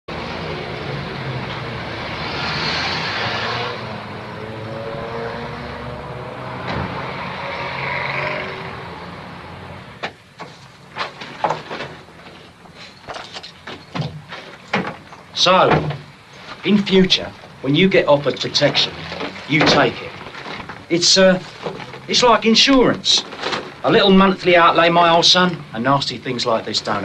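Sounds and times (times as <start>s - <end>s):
traffic passing: 0.1s - 27.0s
things handled in a bag: 18.3s - 22.1s, 23.1s - 24.0s.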